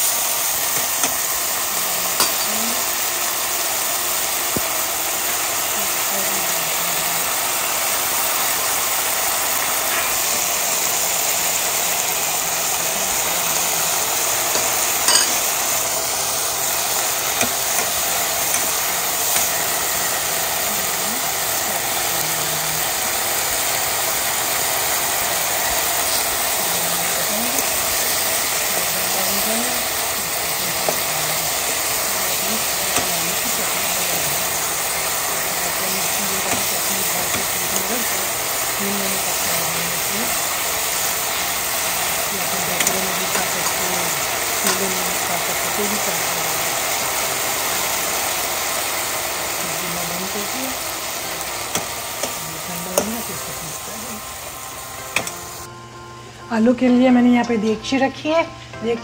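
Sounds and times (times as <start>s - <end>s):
spices sizzling in hot oil: 0.0s - 55.7s
spatula tapping pan: 14.5s - 15.5s.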